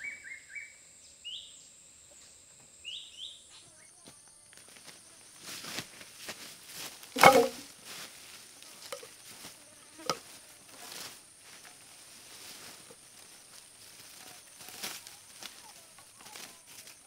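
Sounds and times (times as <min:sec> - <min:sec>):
footsteps rustling through undergrowth: 0:02.9 - 0:17.0
wooden poles clattering: 0:06.8 - 0:09.4, 0:10.0 - 0:10.3
wood knocking on wood: 0:07.2 - 0:07.6.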